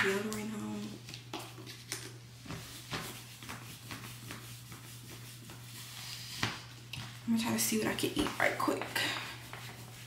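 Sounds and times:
deodorant rubbing strokes: 2.4 - 10.0.

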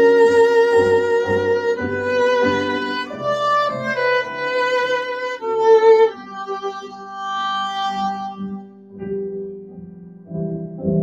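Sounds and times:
viola playing slow melody: 0.0 - 9.0.

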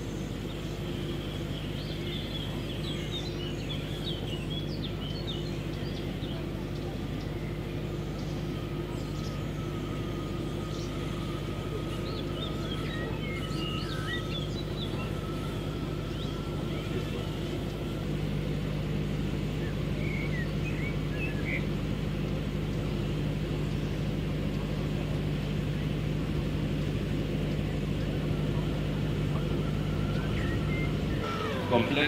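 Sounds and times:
birds chirping: 0.0 - 32.0
electric motor whir: 28.2 - 32.0.

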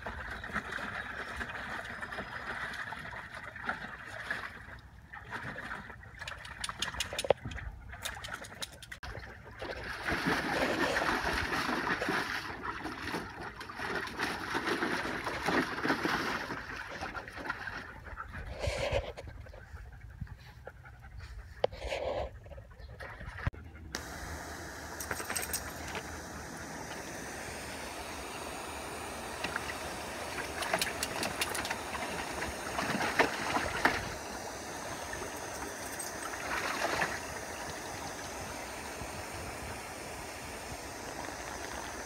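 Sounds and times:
lawn sprinkler spraying water: 24.0 - 42.0.

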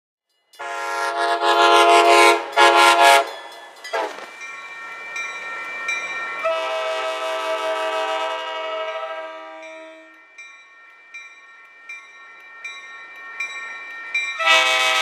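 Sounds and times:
locomotive air horn: 0.6 - 3.4, 6.4 - 10.2, 14.4 - 15.0.

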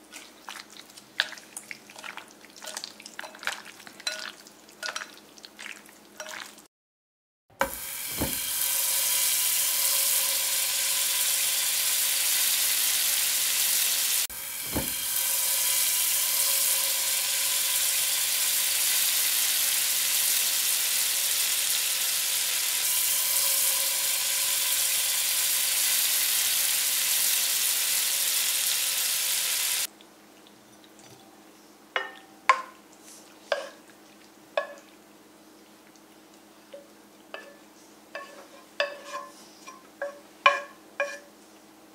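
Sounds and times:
food sizzling in a hot pan: 7.6 - 29.9.

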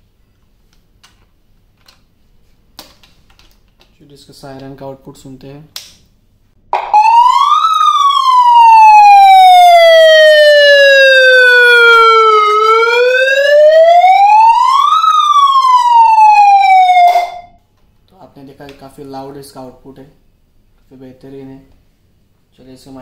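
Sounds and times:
megaphone siren wailing: 6.8 - 17.5.

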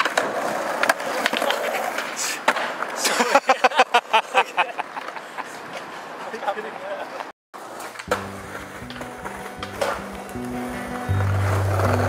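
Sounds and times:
skateboard clacking: 0.0 - 3.1, 4.8 - 12.0
skateboard wheels rolling on paving: 0.0 - 12.0
man laughing hard: 3.0 - 5.5.

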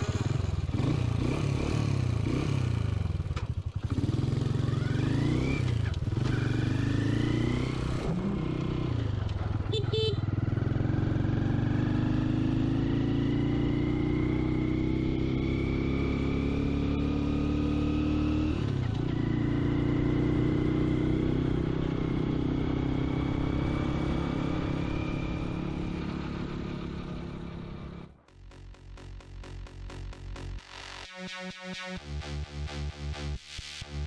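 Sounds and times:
motorbike engine running: 0.0 - 18.2.

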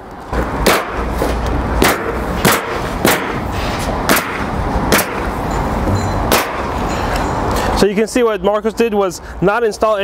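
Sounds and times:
nail gun firing: 0.6 - 1.0, 1.8 - 3.4, 4.1 - 5.3, 6.3 - 6.6.

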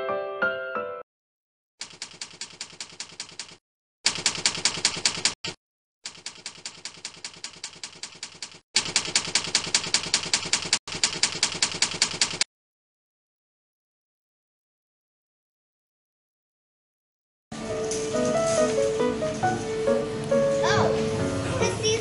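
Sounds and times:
typewriter key clacks: 1.8 - 12.4.

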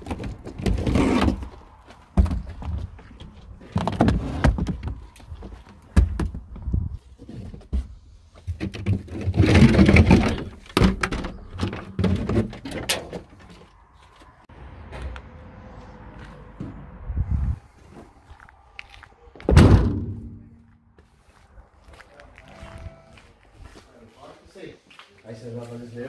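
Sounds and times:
flight cases thunking and knocking: 2.1 - 6.7, 8.5 - 13.6.

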